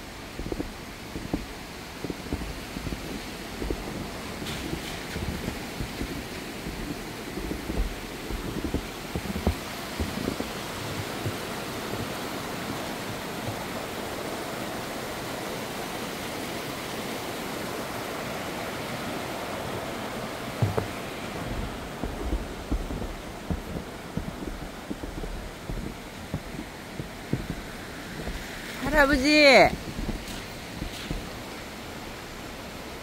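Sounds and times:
stream water rushing: 0.0 - 33.0
short low bumps: 20.6 - 31.4.

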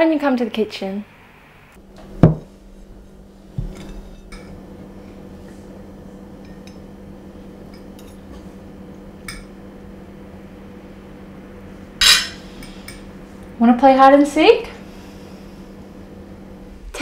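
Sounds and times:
steady low hum: 0.0 - 17.0
knock: 2.2 - 2.5
plate set down on table: 12.0 - 12.4
forks clinking against plates: 12.0 - 13.0.

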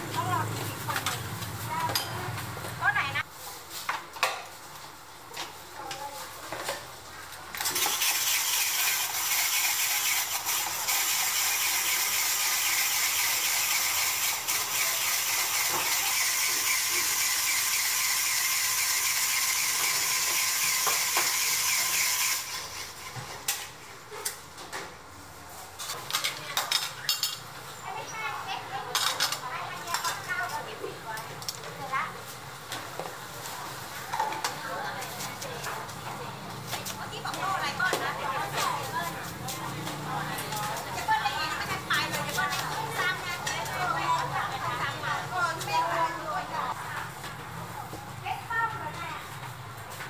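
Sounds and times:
ice shaver grinding: 7.7 - 23.0.

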